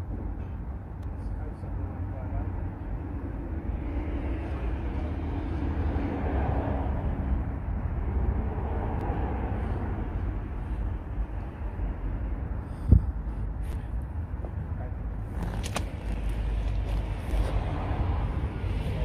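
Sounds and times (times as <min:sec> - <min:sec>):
steady low rumble: 0:00.0 - 0:19.0
vehicle passing by: 0:03.5 - 0:12.5, 0:16.0 - 0:19.0.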